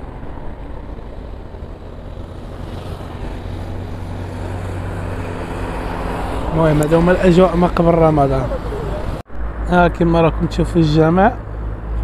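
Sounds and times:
approaching vehicle engine hum: 0.0s - 12.0s.

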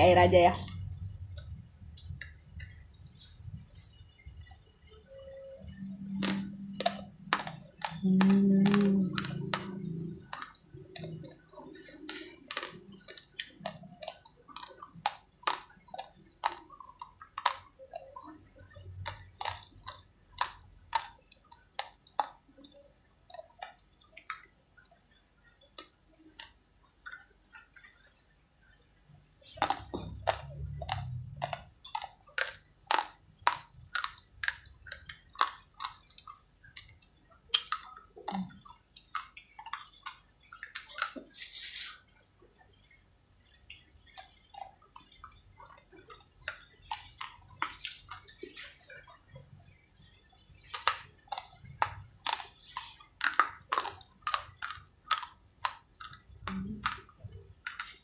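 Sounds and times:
raw rice being chewed: 0.6s - 42.6s, 43.6s - 58.0s.

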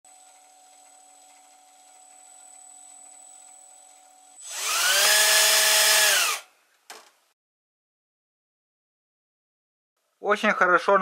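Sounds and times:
electric motor whine: 4.4s - 6.4s.

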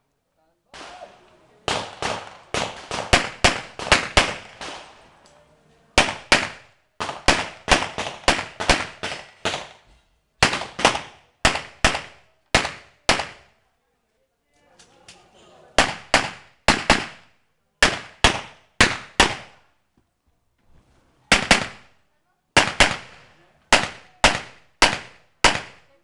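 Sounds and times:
handgun shots: 22.6s - 25.9s.

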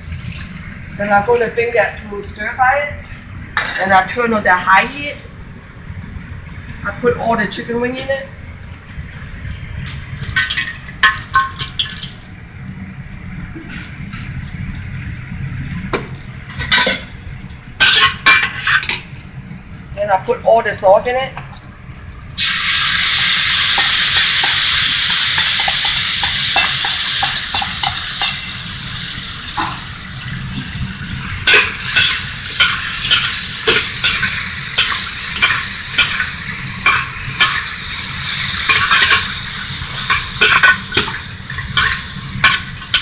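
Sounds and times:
metal spatula scraping a wok: 17.8s - 19.0s, 31.4s - 43.0s
sauce sizzling in a wok: 21.8s - 43.0s.

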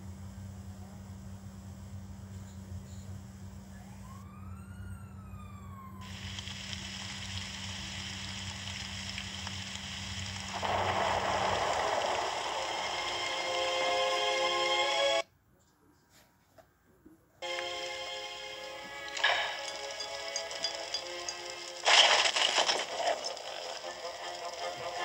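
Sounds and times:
tape hiss and static: 0.0s - 4.0s, 6.0s - 25.0s
low electrical hum: 0.0s - 25.0s.

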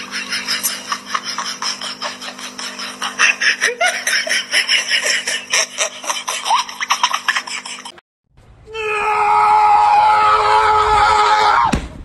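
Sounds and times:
hearty laughter: 0.0s - 8.0s
steady low hum: 0.0s - 8.7s.

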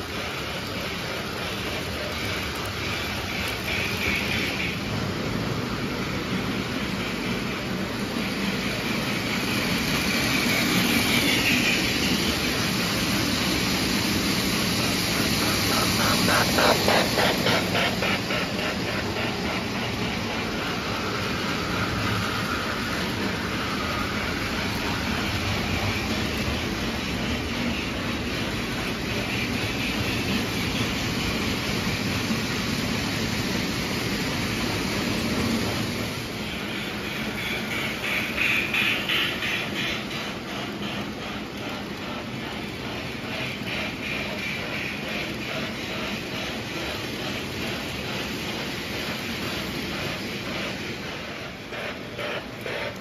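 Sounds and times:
toy train motors whirring: 0.0s - 53.0s
wheels clicking over rail joints: 0.0s - 53.0s.

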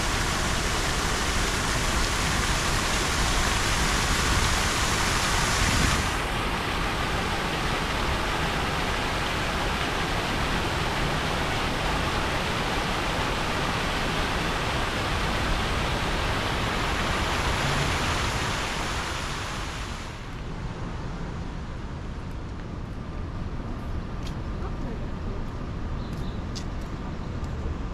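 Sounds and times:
fountain water splashing: 0.0s - 20.4s.

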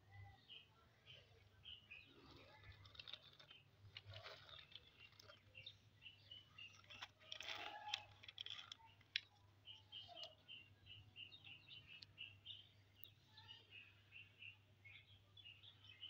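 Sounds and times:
toy cars rolling on concrete: 2.0s - 10.4s.

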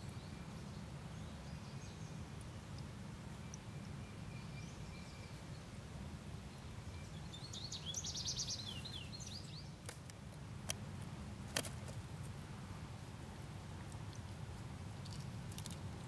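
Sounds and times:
bird chirping: 3.4s - 5.7s, 6.5s - 9.8s.

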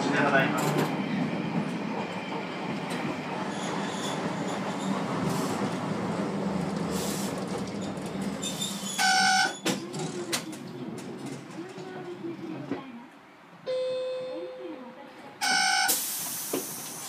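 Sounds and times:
tram wheels and motor rumbling: 0.0s - 13.6s.

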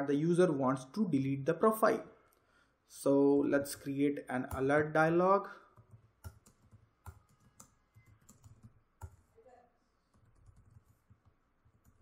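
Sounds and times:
typing on computer keyboard: 5.8s - 9.2s, 10.1s - 12.0s.

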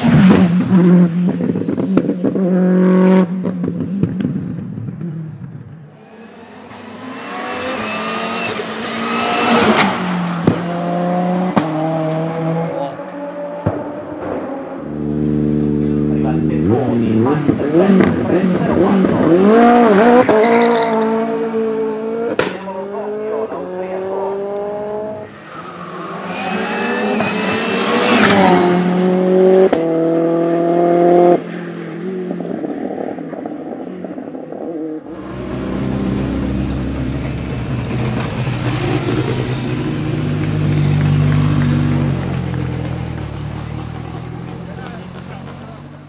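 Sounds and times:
car engine accelerating hard: 6.3s - 31.4s, 35.0s - 46.0s
sharp crack: 22.4s - 22.7s.

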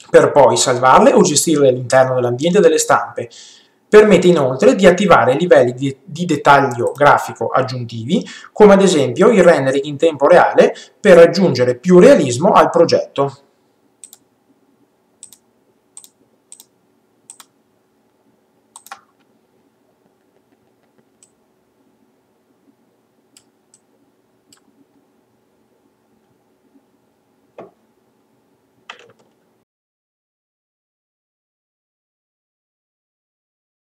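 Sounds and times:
computer mouse clicks: 14.0s - 14.3s, 15.2s - 15.4s, 16.0s - 16.7s, 17.3s - 17.5s, 18.7s - 19.3s, 20.2s - 21.4s, 23.3s - 23.9s, 24.5s - 24.7s.

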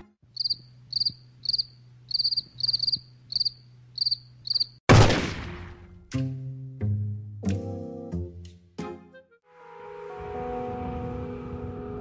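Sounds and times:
cricket chirping: 0.3s - 4.8s.

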